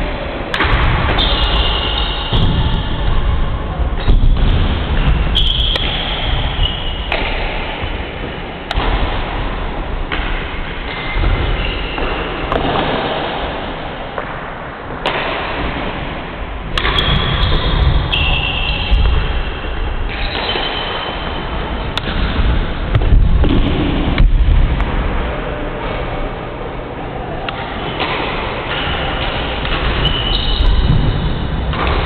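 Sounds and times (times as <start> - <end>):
noisy hall background: 0.0 - 32.0
court shoes squeaking: 1.1 - 2.9, 4.0 - 7.6, 10.8 - 12.9, 16.7 - 22.3, 27.6 - 32.0
racket striking shuttlecock: 5.6 - 6.2, 16.7 - 19.2.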